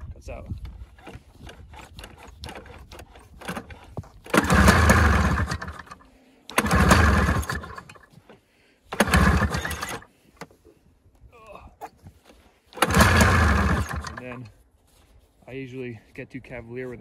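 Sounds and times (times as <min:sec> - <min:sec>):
two-stroke engine starting and dying: 0:01.0 - 0:08.1, 0:08.9 - 0:10.1, 0:12.8 - 0:14.5.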